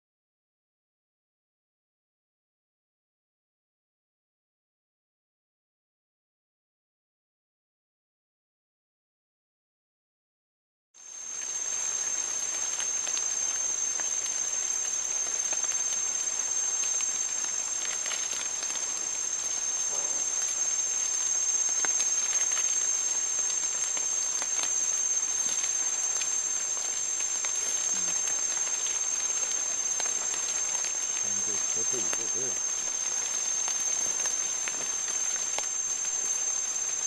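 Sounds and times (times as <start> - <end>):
constant high-pitched whine: 11.0 - 37.0
even forest hiss: 11.0 - 37.0.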